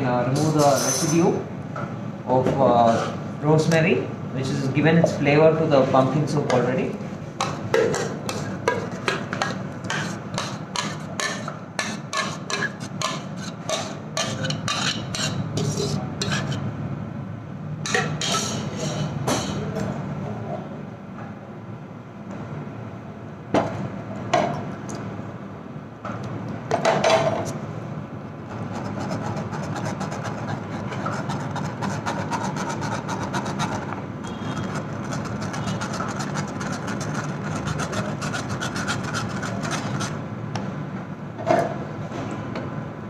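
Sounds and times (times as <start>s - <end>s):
whisk scraping metal strainer: 8.3s - 16.6s, 28.8s - 40.2s.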